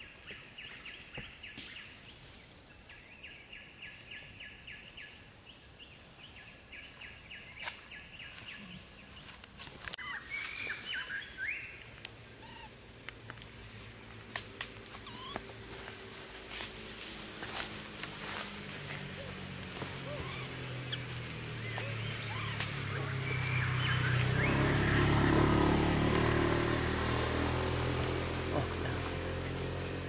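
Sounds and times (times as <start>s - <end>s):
high insect drone: 0.0s - 30.0s
bird calling rapid notes: 15.0s - 15.5s, 20.0s - 25.1s.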